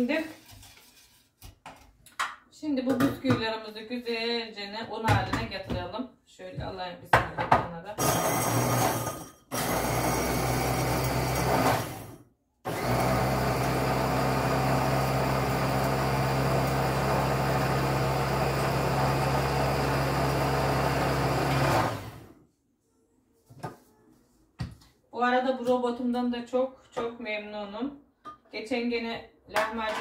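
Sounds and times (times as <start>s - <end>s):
electric food chopper motor: 8.0s - 22.4s.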